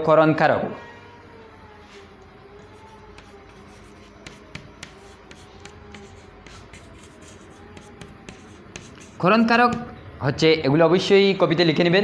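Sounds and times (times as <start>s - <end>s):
chalk scratching on chalkboard: 2.0s - 9.9s
chalk tapping on board: 2.6s - 10.0s.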